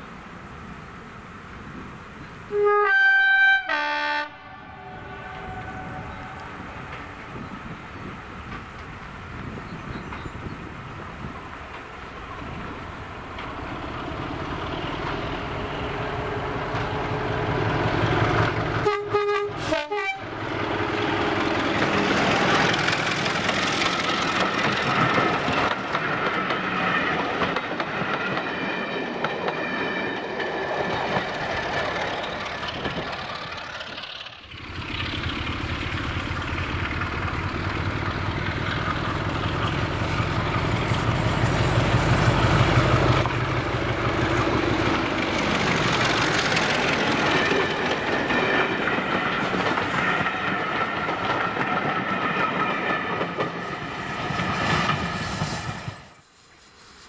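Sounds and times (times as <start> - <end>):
train horn blasts: 2.5 - 6.7, 18.8 - 20.3
train wheels clattering over rail joints: 20.6 - 55.9.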